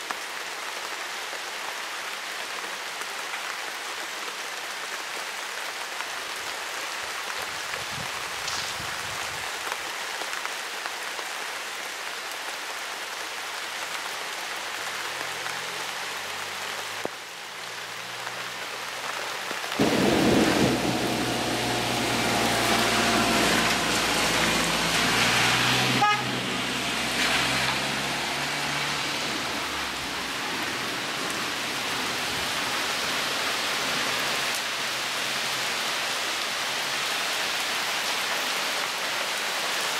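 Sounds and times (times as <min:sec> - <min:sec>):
heavy rain falling: 0:00.0 - 0:39.9
long rumble of thunder: 0:19.8 - 0:24.5.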